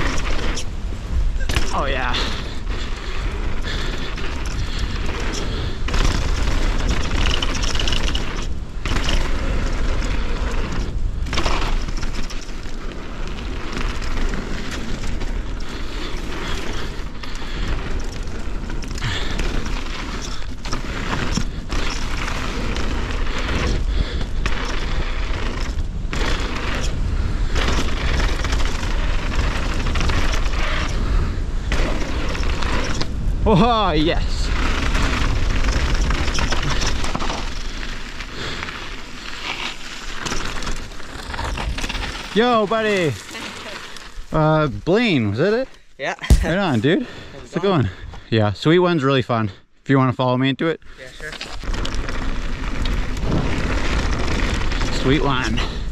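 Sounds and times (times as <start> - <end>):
wind buffeting microphone: 0.0 - 38.6, 51.5 - 55.9
bike clattering over bumps: 0.0 - 44.2, 51.4 - 55.9
bike tyres on dirt trail: 0.0 - 49.8, 50.8 - 55.9.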